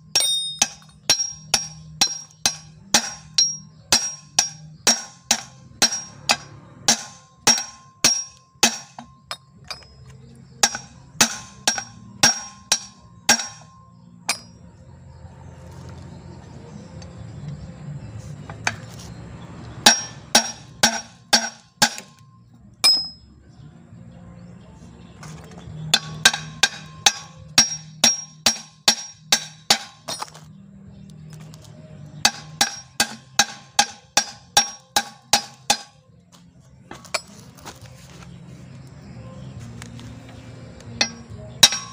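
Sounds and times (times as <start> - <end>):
hammer ringing on steel: 0.0 - 9.9, 10.6 - 14.7, 19.8 - 22.2, 22.8 - 23.2, 25.9 - 30.2, 32.2 - 36.0, 41.0 - 41.9.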